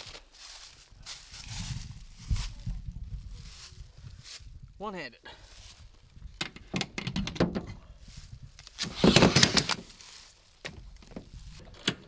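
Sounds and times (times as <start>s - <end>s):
scraping rustle: 8.1s - 11.8s.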